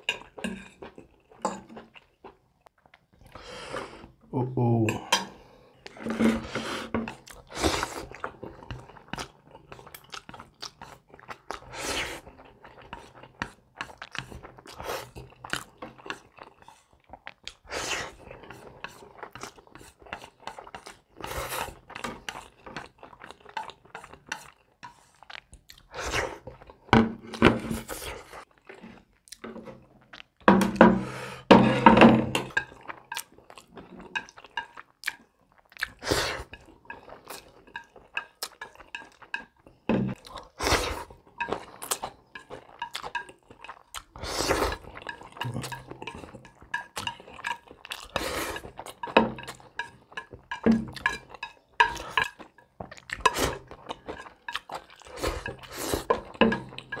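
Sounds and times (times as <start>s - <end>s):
chewing and slurping: 0.0s - 4.2s, 5.0s - 57.0s
chopsticks scraping a ceramic plate: 5.9s - 9.1s, 36.2s - 52.6s, 53.2s - 57.0s.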